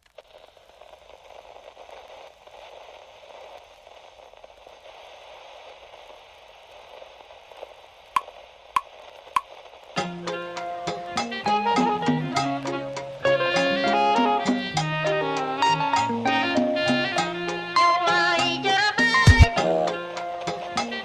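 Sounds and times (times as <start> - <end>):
static hiss: 0.0 - 21.0.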